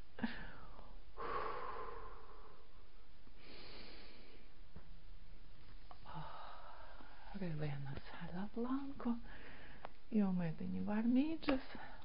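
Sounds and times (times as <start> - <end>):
woman breathing: 0.1 - 4.8, 5.9 - 7.5, 9.2 - 10.1.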